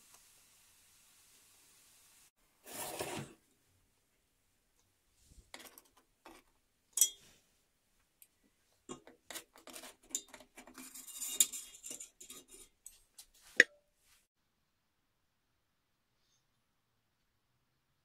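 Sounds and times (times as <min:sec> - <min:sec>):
metal clinking and scraping: 0:05.5 - 0:07.4, 0:08.9 - 0:13.6.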